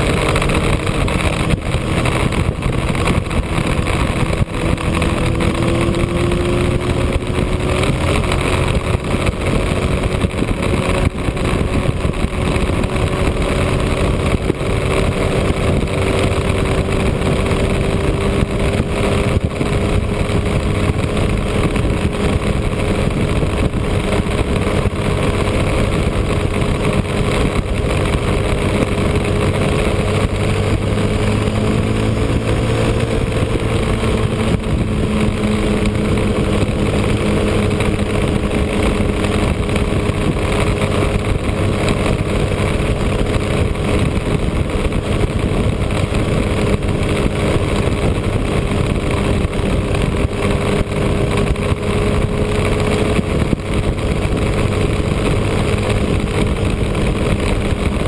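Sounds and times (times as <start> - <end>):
motorcycle engine cruising: 0.0 - 58.0
wind and road noise: 0.0 - 58.0.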